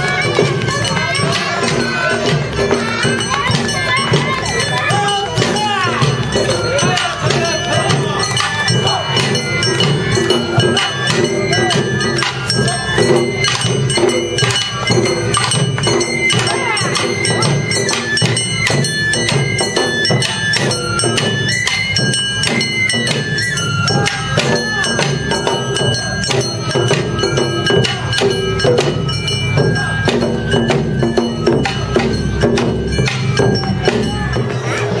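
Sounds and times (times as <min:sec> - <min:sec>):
taiko drums beat: 0:00.0 - 0:35.0
hand gong clanging: 0:00.2 - 0:35.0
bamboo flutes melody: 0:02.8 - 0:30.4.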